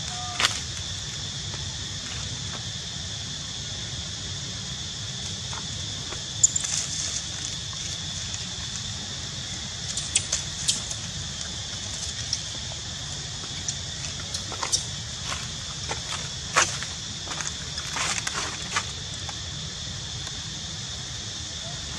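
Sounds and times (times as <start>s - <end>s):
insects droning: 0.0s - 21.9s
dry leaves crackling: 5.7s - 19.4s.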